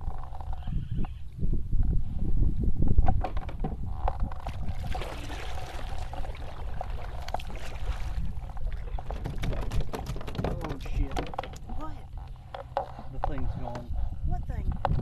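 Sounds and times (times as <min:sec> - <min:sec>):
wind on microphone: 0:00.0 - 0:12.4, 0:13.0 - 0:15.0
paddle strokes in water: 0:04.2 - 0:10.5
sharp clicks and knocks: 0:09.0 - 0:13.9.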